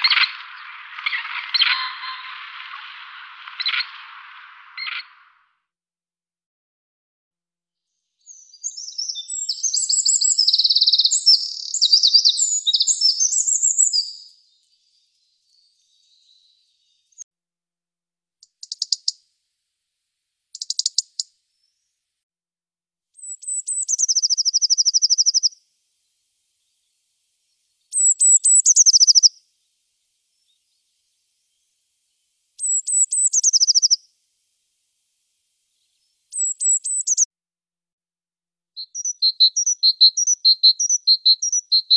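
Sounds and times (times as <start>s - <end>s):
bird ticking calls: 0.0s - 5.4s, 18.4s - 19.2s, 20.6s - 21.3s, 23.2s - 25.6s, 27.9s - 29.4s, 32.6s - 34.1s, 35.8s - 37.3s
blue tit song: 0.0s - 5.4s, 8.2s - 17.2s, 23.2s - 34.7s, 35.5s - 37.3s, 38.8s - 41.9s
wren trilling song: 0.0s - 5.5s, 8.2s - 17.2s, 18.4s - 19.2s, 20.5s - 21.8s, 23.2s - 37.3s, 38.8s - 41.9s.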